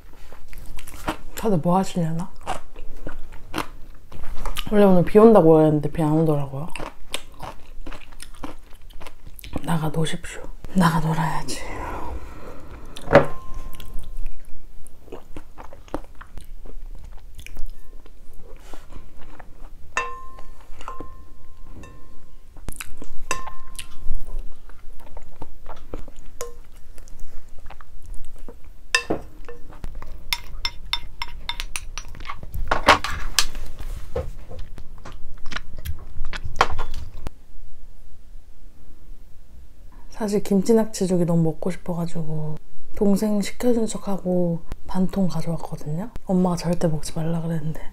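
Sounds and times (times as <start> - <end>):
chewing and mouth sounds: 2.3 - 4.7, 6.7 - 9.7, 13.7 - 19.8, 22.7 - 28.7, 35.0 - 37.3.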